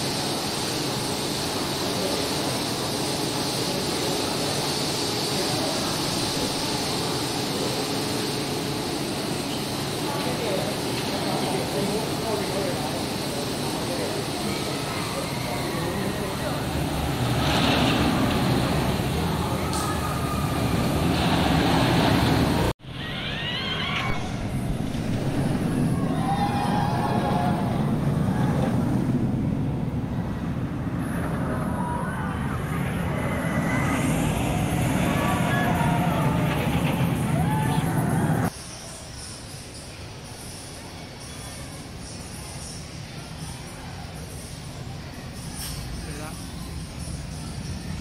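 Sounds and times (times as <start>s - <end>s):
roller coaster lift chain running: 0.0s - 22.7s, 23.4s - 38.5s
riders screaming: 19.2s - 21.4s, 22.8s - 24.6s, 25.8s - 28.8s, 31.0s - 38.5s.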